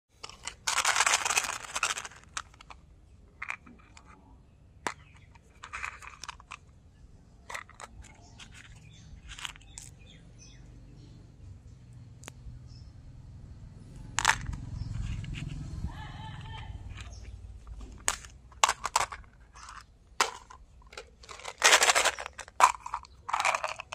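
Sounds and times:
plastic containers clicking: 0.2s - 2.8s, 4.8s - 6.7s, 7.4s - 10.0s, 16.9s - 23.9s.

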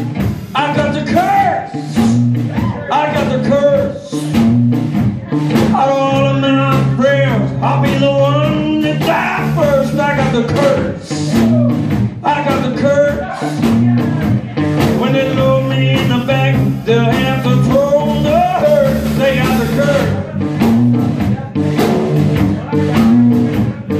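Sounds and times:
drum kit hits: 0.0s - 23.9s
electric bass low notes: 0.0s - 23.9s
electric guitar: 0.0s - 23.9s
wavering lead melody: 13.6s - 23.7s.

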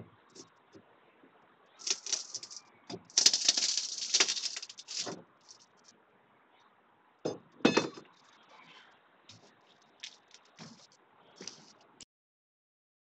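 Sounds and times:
debris crackling and rattling: 1.8s - 5.8s.

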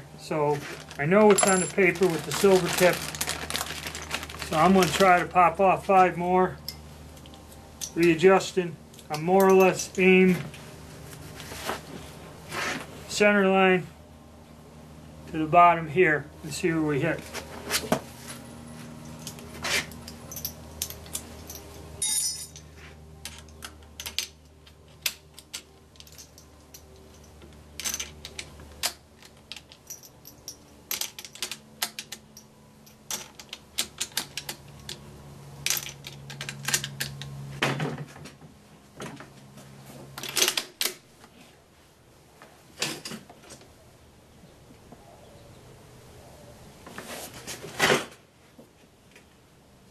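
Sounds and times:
metallic clicks and rattles: 19.1s - 35.0s.

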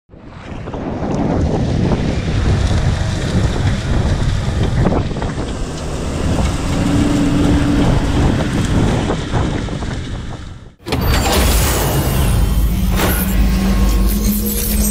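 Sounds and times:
wind buffeting microphone: 0.1s - 10.8s
tractor pulling disc harrow: 2.3s - 14.9s.

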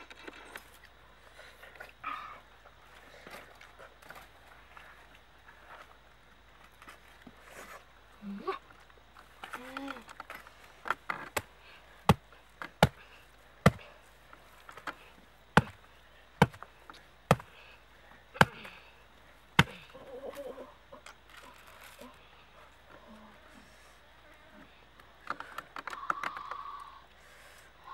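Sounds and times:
sharp knocks splitting fruit: 11.2s - 13.0s, 13.6s - 13.9s, 15.6s - 15.8s, 16.4s - 16.7s, 17.3s - 17.6s, 18.4s - 18.8s, 19.6s - 19.9s.

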